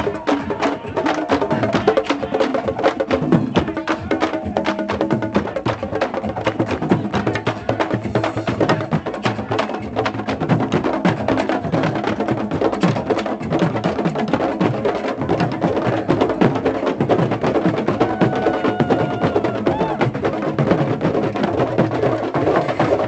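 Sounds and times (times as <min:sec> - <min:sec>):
percussion group drumming: 0:00.0 - 0:23.0.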